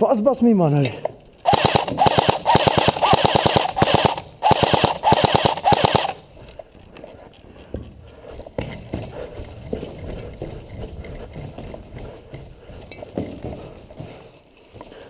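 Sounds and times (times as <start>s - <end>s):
airsoft rifle firing bursts: 1.4s - 6.3s.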